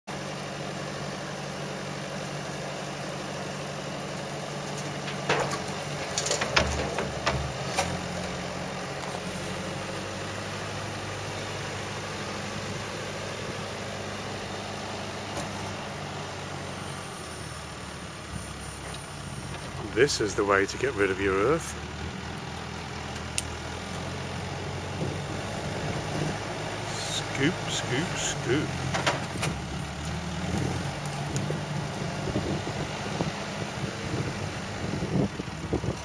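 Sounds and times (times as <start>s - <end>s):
diesel engine running: 0.1s - 36.0s
soil and stones dropping into trailer: 4.8s - 8.0s.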